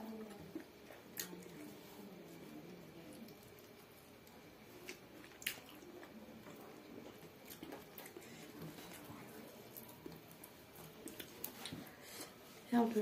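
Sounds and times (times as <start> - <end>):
mouth clicks and chewing: 0.2 - 1.6, 3.0 - 11.8.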